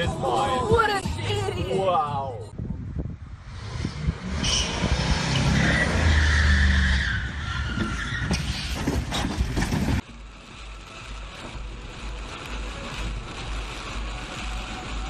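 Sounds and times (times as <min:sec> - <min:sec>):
tyres skidding and squealing: 0:03.6 - 0:10.0
knocks and thuds: 0:07.8 - 0:10.0.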